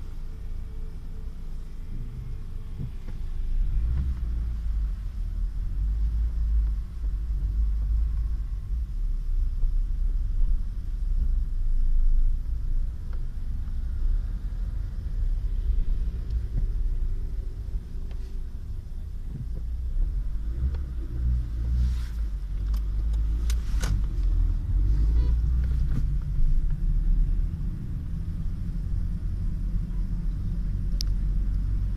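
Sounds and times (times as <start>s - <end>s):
low rumble of car traffic: 0.0s - 31.9s.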